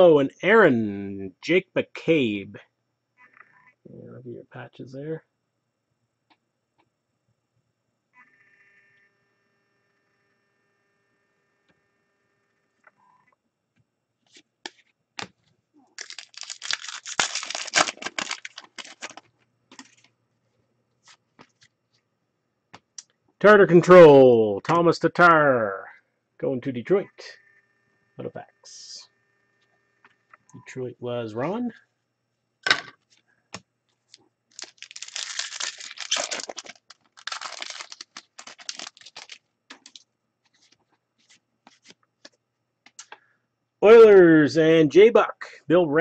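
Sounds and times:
wrapper crinkling as torn open: 0:15.9 - 0:19.9, 0:34.5 - 0:40.0.

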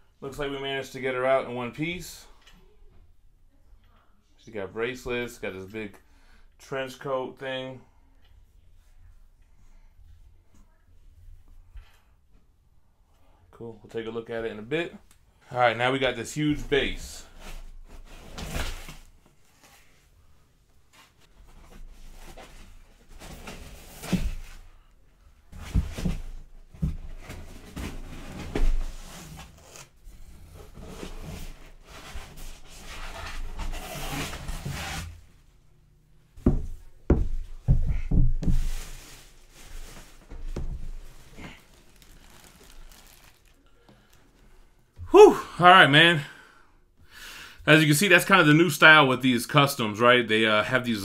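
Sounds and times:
plastic wrapping crinkling: 0:38.6 - 0:44.6.

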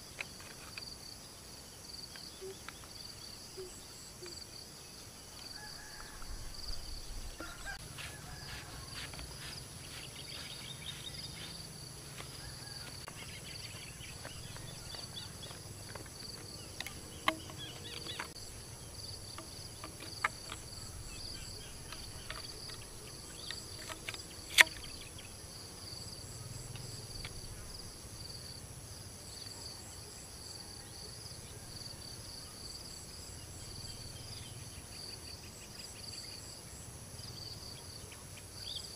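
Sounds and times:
insects trilling: 0:00.0 - 0:38.9
plastic pipe fittings clicking: 0:15.8 - 0:18.5, 0:19.2 - 0:25.0.

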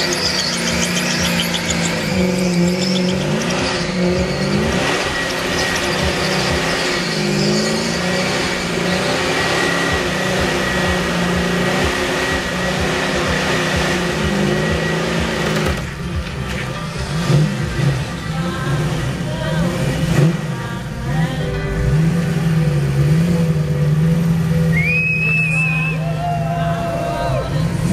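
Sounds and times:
tyres squealing: 0:00.0 - 0:11.7, 0:14.4 - 0:18.6
car engine revving high: 0:00.0 - 0:27.9.

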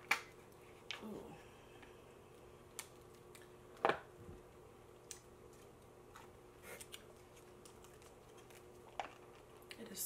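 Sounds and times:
plastic packaging crinkling: 0:05.0 - 0:09.7.

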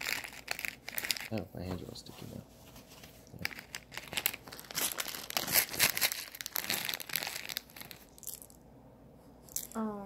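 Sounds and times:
plastic bag crinkling: 0:00.0 - 0:01.4, 0:03.2 - 0:08.6.

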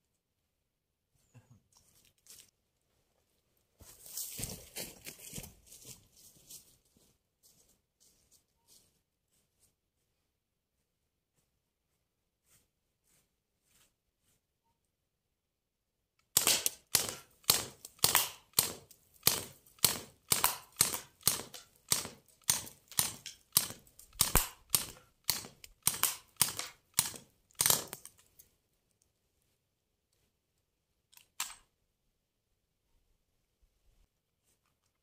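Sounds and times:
bb gun shots popping: 0:16.4 - 0:27.9.

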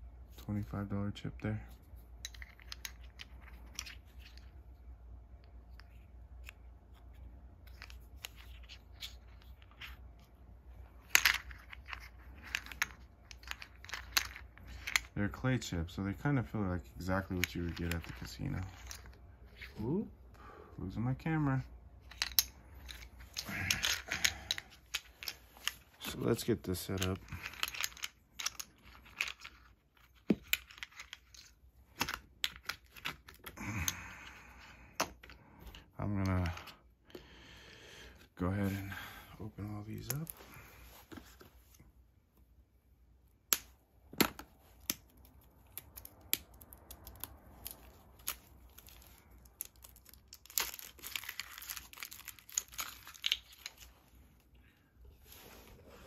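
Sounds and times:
poker chips clicking and knocking: 0:02.1 - 0:04.6, 0:05.6 - 0:10.0, 0:11.0 - 0:15.2, 0:17.2 - 0:19.7, 0:22.0 - 0:36.7, 0:43.5 - 0:53.9
poker chips clicking together: 0:02.2 - 0:04.4, 0:11.1 - 0:15.1, 0:22.0 - 0:25.8, 0:26.9 - 0:33.6
plastic crinkle: 0:44.4 - 0:54.5.

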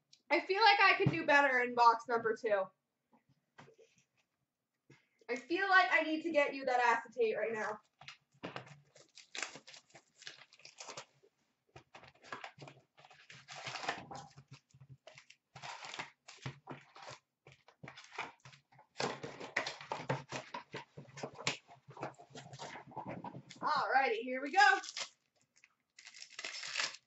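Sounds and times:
plastic wrappers crinkling and tearing: 0:07.8 - 0:20.6, 0:24.7 - 0:27.0.

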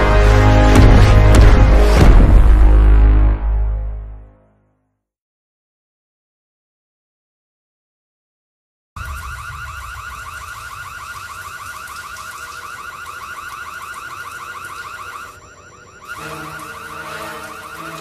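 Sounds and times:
low rumble: 0:00.0 - 0:04.3
electronic alarm chirping: 0:09.0 - 0:18.0
low steady tones: 0:09.0 - 0:18.0.

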